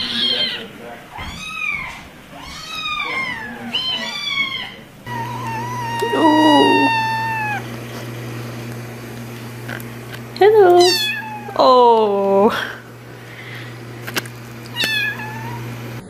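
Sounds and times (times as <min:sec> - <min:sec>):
cat long meow: 0:00.0 - 0:07.6, 0:10.8 - 0:11.6, 0:14.7 - 0:15.7
kitten meowing: 0:00.0 - 0:07.6, 0:10.6 - 0:11.7, 0:14.7 - 0:15.7.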